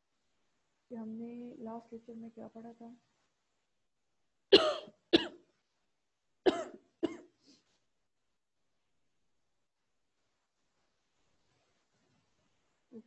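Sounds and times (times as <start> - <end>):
person coughing: 4.5 - 5.4, 6.5 - 7.4.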